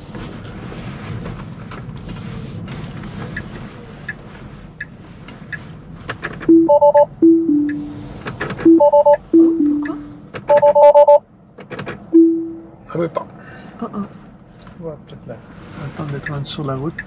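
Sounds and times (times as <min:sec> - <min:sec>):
car road noise: 0:00.0 - 0:17.0
electronic car alert chimes: 0:06.5 - 0:08.0, 0:08.7 - 0:11.2, 0:12.2 - 0:12.7.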